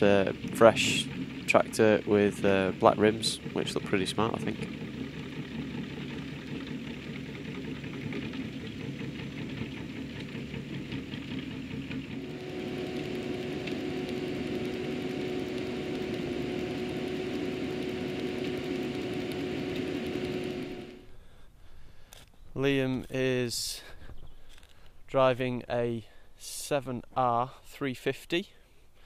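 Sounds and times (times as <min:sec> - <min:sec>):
tractor diesel engine working: 0:00.0 - 0:21.2
constant hum: 0:00.0 - 0:25.9.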